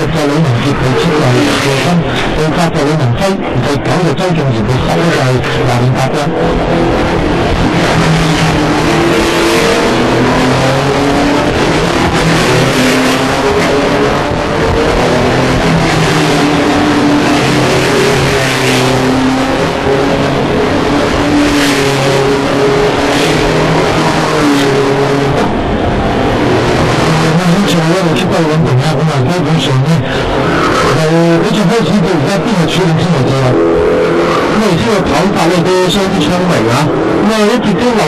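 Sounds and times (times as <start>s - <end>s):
racing car engines at speed: 0.0s - 38.0s.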